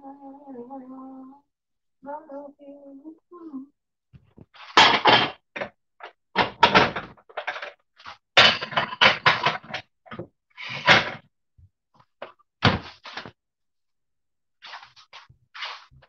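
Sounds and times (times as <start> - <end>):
cookware knocking and clanking: 4.8 - 5.7, 6.4 - 7.8, 8.4 - 11.2.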